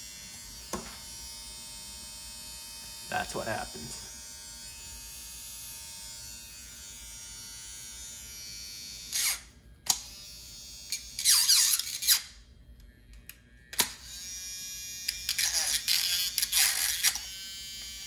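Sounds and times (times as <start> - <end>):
electric toothbrush motor buzzing: 0.0 - 12.3, 13.8 - 18.0.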